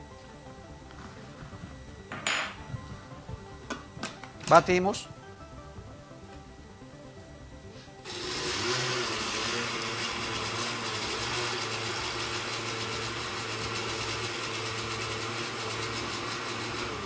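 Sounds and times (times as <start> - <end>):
blender running: 8.0 - 17.0.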